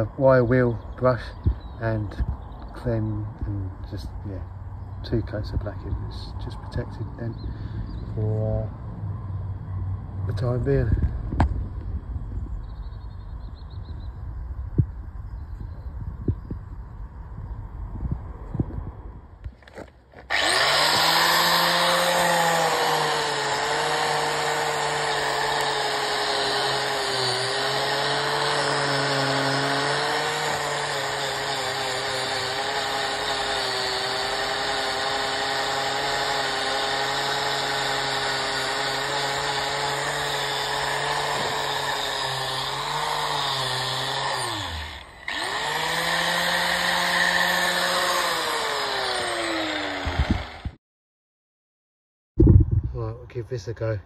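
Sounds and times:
angle grinder wire brush on steel: 20.3 - 50.3.

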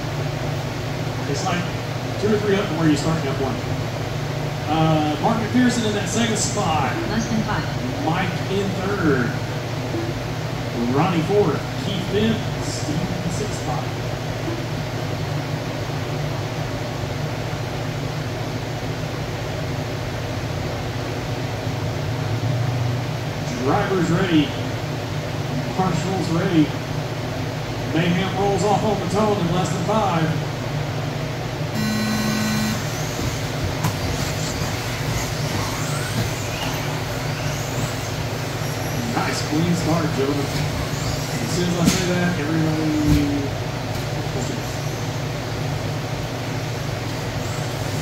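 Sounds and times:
steady low hum: 0.0 - 48.0
low hum: 30.4 - 48.0
race start tone: 31.8 - 38.0
electric rc cars whining: 31.8 - 43.5, 44.4 - 45.2.

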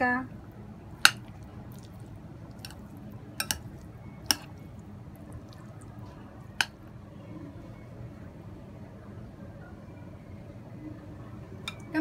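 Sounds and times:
squishing of potato salad: 0.4 - 7.0.

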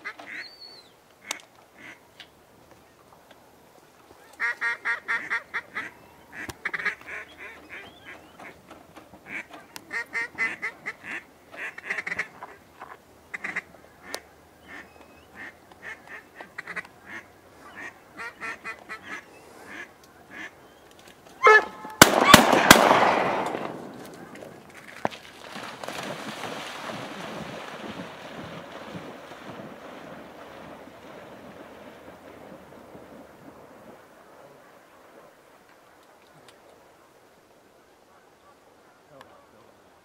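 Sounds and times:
duck quacks: 4.4 - 8.5, 9.3 - 20.5
shotgun shots with echo: 22.0 - 24.2.

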